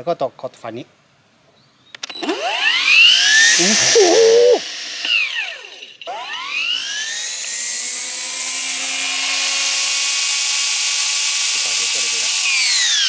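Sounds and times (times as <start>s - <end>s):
brush cutter motor whine: 2.0s - 13.0s.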